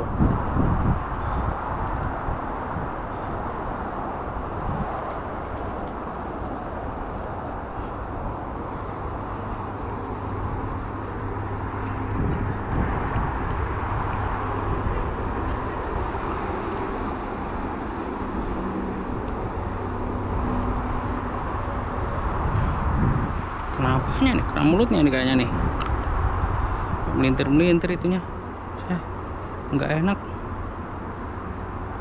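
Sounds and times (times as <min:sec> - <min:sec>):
low outdoor rumble: 0:00.0 - 0:32.0.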